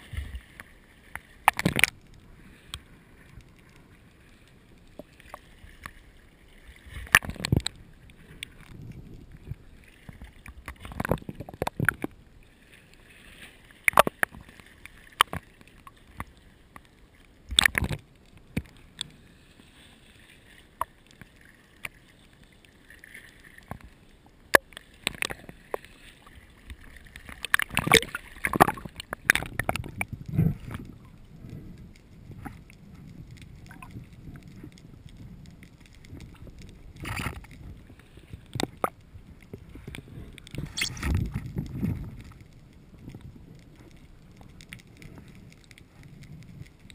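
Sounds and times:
faint water hiss: 0.0 - 11.1, 11.9 - 46.9
underwater clicks and knocks: 0.1 - 2.1, 6.9 - 7.8, 10.0 - 12.2, 13.8 - 14.5, 15.1 - 16.9, 17.5 - 19.1, 23.6 - 23.9, 24.5 - 25.8, 26.6 - 31.6, 32.2 - 37.8, 38.4 - 46.9.

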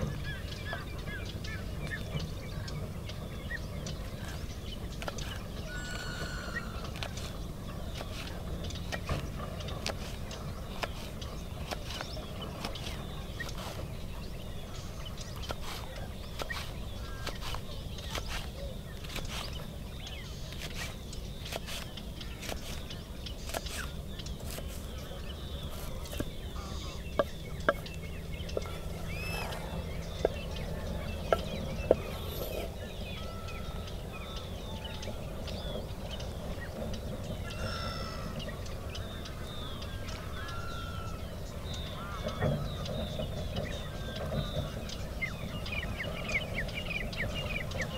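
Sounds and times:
steady low hum: 0.0 - 47.9
poultry calling: 5.4 - 7.3, 25.4 - 35.8, 37.4 - 43.0.

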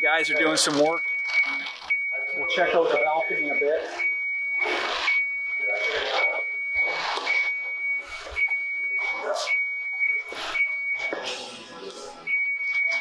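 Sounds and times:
reversing alarm beeping: 0.0 - 13.0.

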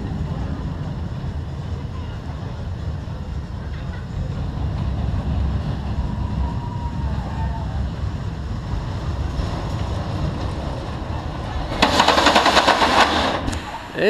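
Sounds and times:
roller coaster rumbling on track: 0.0 - 14.0.

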